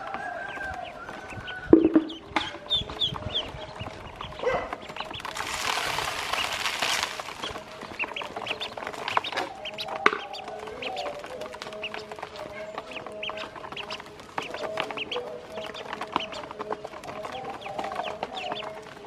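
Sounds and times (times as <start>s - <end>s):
ducklings peeping: 0.0s - 19.0s
bills pecking on plastic basin: 0.1s - 19.0s
feed grains scattered into basin: 5.2s - 7.8s.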